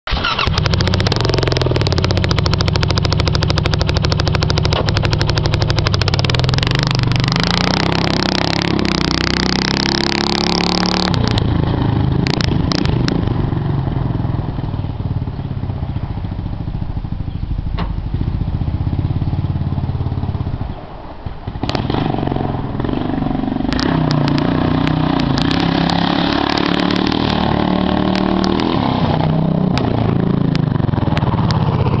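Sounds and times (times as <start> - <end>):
loud engine revving past: 0.6 - 13.6, 21.6 - 32.0.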